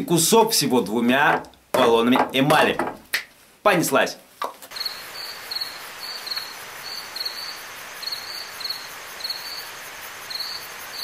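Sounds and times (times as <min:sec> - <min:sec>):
steady hiss: 0:02.9 - 0:11.0
crickets chirping: 0:04.7 - 0:11.0.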